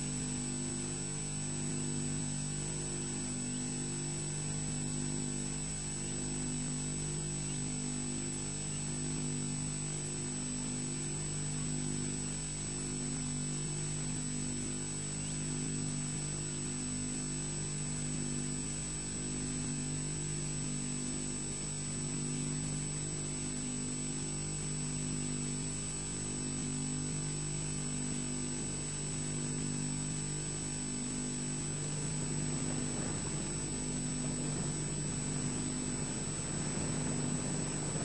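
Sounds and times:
electrical hum: 25.1 - 38.0
thin high whine: 30.4 - 38.0.

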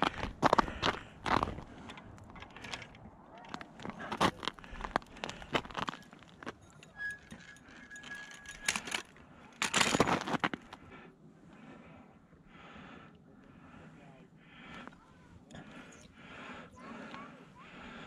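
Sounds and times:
fishing gear clicks and rattles: 0.4 - 10.7
thin steady squeak: 5.6 - 9.2.

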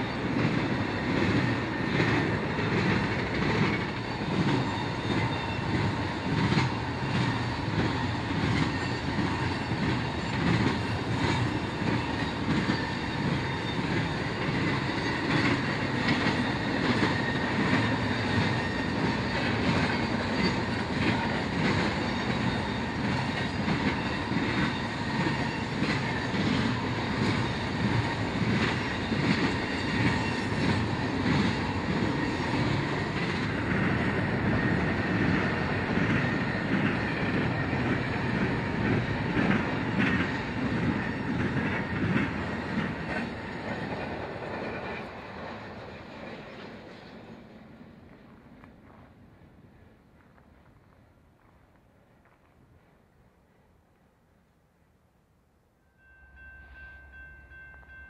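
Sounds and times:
train wheels clickety-clack: 0.0 - 53.0
wheel squeal: 7.1 - 20.7, 22.0 - 26.7.

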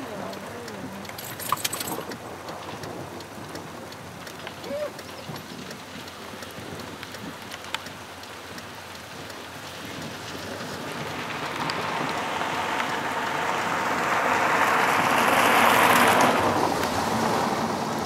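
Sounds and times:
sharp drop ticks: 0.0 - 10.4
heavy rain on car roof: 0.0 - 18.0.

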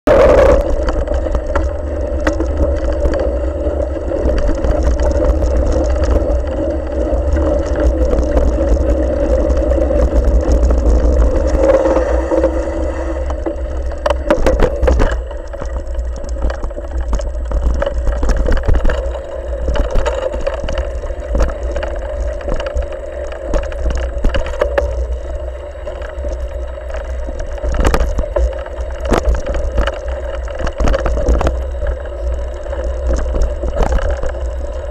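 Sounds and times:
steady hum: 0.0 - 34.9
bike knocks and rattles: 0.1 - 25.2.

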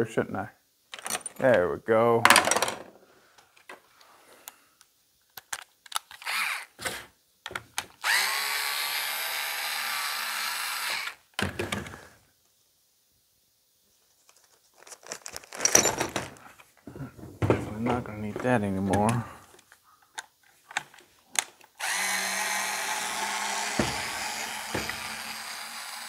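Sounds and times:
light clicks of parts: 3.4 - 6.4, 18.4 - 21.8
small electric power tool running: 6.2 - 6.7, 8.0 - 11.2, 21.8 - 26.0
plastic bag rustling: 14.2 - 18.3.

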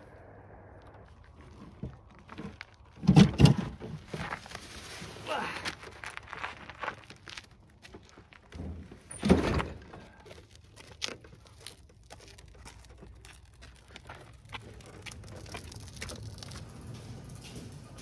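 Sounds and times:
gravel clicks and crunches: 0.0 - 18.0
wheelbarrow rumbling on gravel: 1.5 - 7.4, 11.7 - 18.0.

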